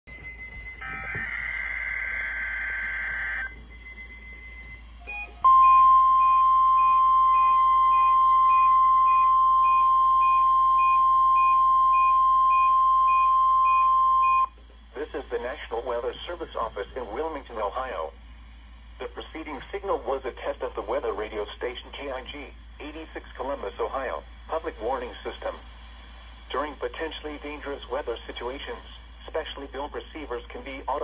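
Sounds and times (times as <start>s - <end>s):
steady warning alarm tone: 0.1s - 14.6s
warbling digital data signal: 0.8s - 4.3s.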